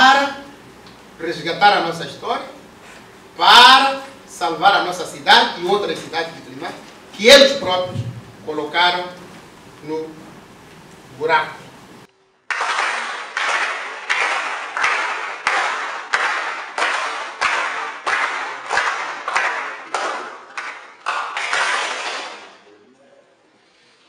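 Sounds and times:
group clapping rhythmically: 0:12.4 - 0:22.7.

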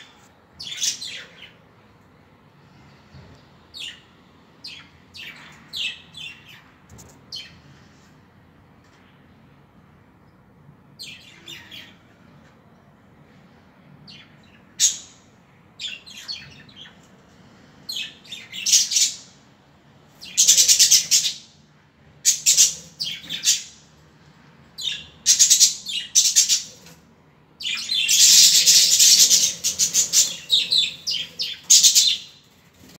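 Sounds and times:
budgerigars chirping and chattering: 0:20.2 - 0:21.5, 0:22.2 - 0:23.8, 0:24.8 - 0:26.9, 0:27.6 - 0:32.4.

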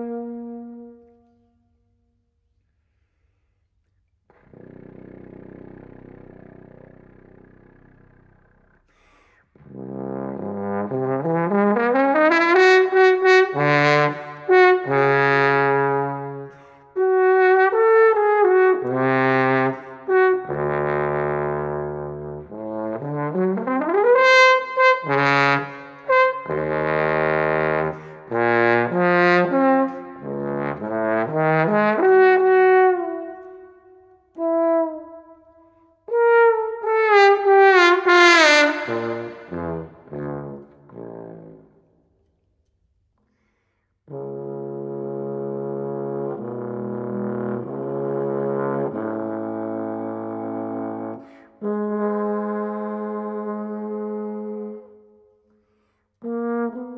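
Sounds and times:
trombone slide glissandos: 0:36.1 - 0:41.6.

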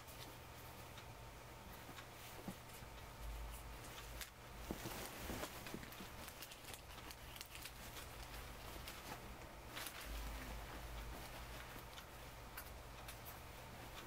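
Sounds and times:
blanket rustling and scraping: 0:04.6 - 0:06.5, 0:07.9 - 0:12.2.

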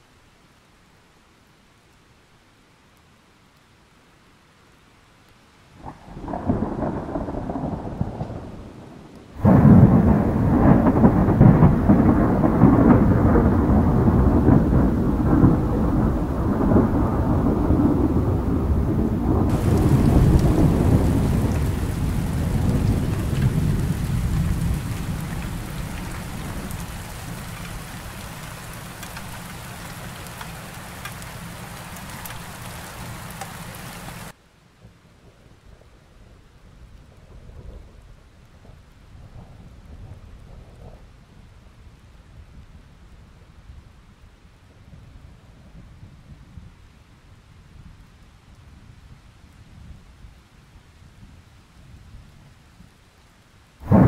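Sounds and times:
rain hiss: 0:00.0 - 0:54.0
thunder rumbling: 0:05.8 - 0:34.3.

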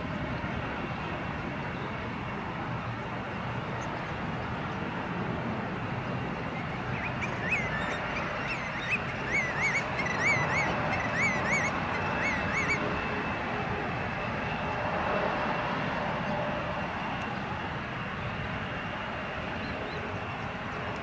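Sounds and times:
jet engines roaring: 0:00.0 - 0:21.0
bird calling: 0:06.6 - 0:12.8.

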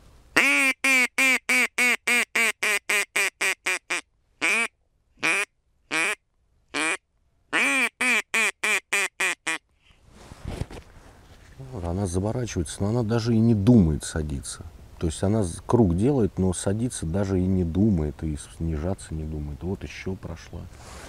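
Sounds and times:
duck call quacks: 0:00.4 - 0:09.6.

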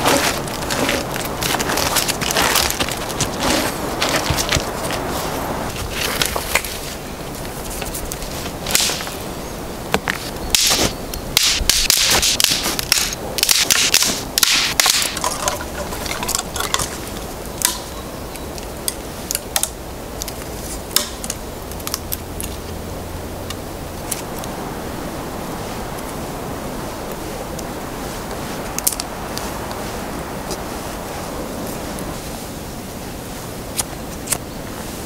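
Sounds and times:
dry twigs snapping: 0:00.0 - 0:09.3, 0:09.9 - 0:22.8, 0:23.4 - 0:24.6, 0:28.3 - 0:29.8
twigs rustling: 0:00.0 - 0:35.0.

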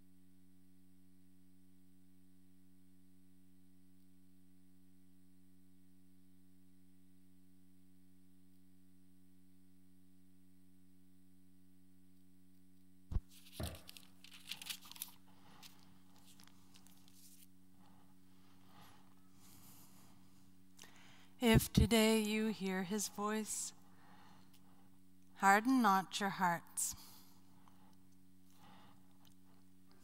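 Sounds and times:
electrical hum from sound system: 0:00.0 - 0:30.0
rustling and handling noises: 0:13.1 - 0:20.6.

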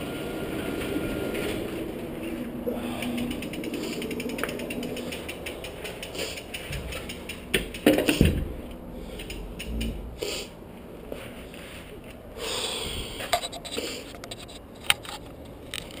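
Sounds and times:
bicycle freehub ticking: 0:00.0 - 0:10.5
clicks and rustling: 0:03.0 - 0:08.5, 0:13.3 - 0:16.0.

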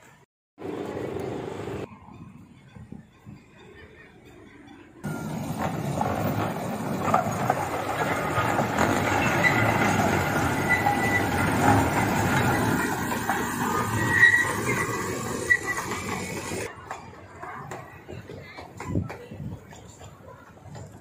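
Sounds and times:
train wheels rumbling on track: 0:00.6 - 0:21.0
high wheel squeals: 0:01.2 - 0:16.7.

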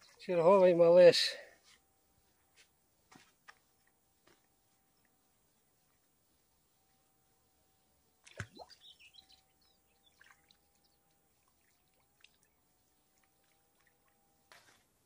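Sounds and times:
faint steady hum: 0:00.0 - 0:15.0
faint bird chirps: 0:04.9 - 0:14.2
small plop into water: 0:08.2 - 0:08.8.

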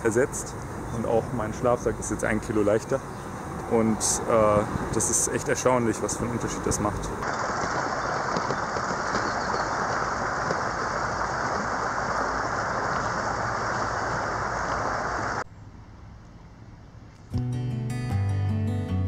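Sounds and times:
water gushing over stones: 0:07.2 - 0:15.4.

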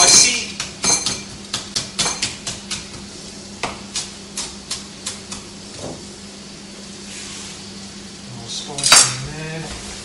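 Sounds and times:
knife chopping on cutting board: 0:00.0 - 0:05.5.

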